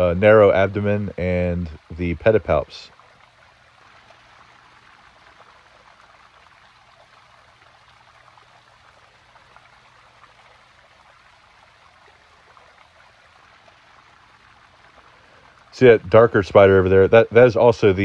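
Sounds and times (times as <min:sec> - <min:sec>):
water trickling: 0:00.0 - 0:18.0.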